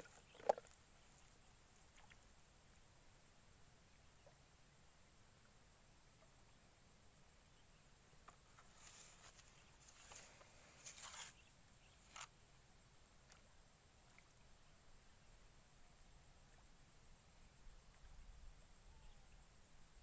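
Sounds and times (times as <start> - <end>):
faint high hiss: 0.0 - 20.0
soft rustles: 8.5 - 11.5.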